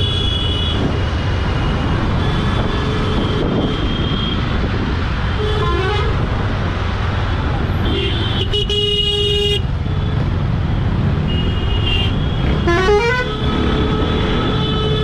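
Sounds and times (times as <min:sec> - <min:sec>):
wind: 0:00.0 - 0:15.0
vehicle horns honking: 0:11.3 - 0:15.0.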